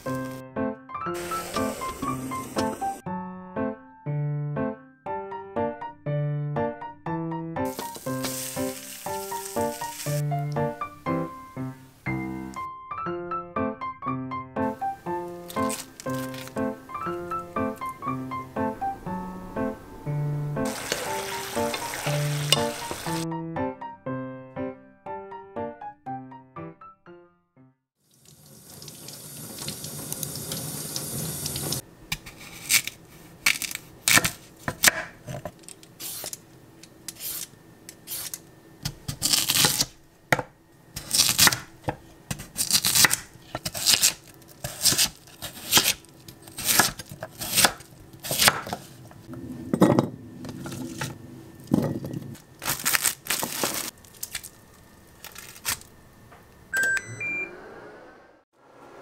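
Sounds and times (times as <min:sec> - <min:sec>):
knife strokes on radish: 0:07.7 - 0:10.2
rising electronic appliance beeps: 0:56.7 - 0:58.3.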